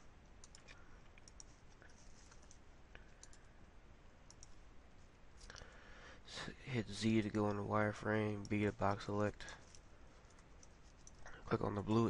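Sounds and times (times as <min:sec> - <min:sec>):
low background hiss: 0:00.0 - 0:12.0
faint computer mouse clicks: 0:00.4 - 0:03.5, 0:04.3 - 0:04.6.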